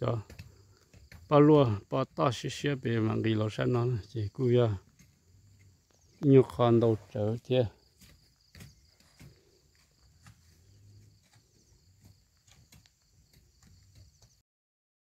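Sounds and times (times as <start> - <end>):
faint high insect chirring: 0.0 - 14.4
soft rustles and ticks: 3.7 - 14.4.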